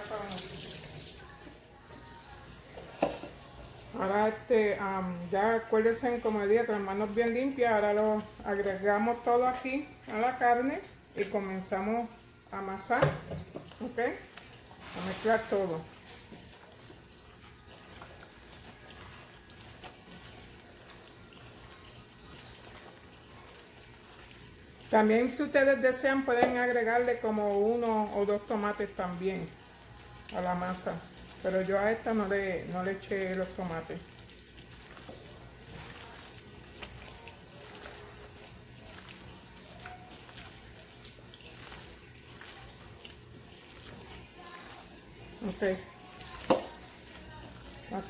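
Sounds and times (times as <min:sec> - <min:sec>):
wet squishing of kneaded meat: 0:13.7 - 0:48.0.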